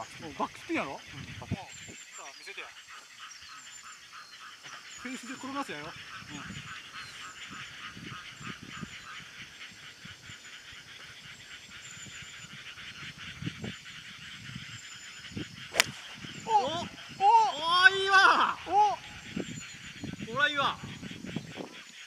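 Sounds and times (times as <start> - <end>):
chirring chorus of animals: 0.0 - 22.0
golf club striking ball: 15.7 - 16.3.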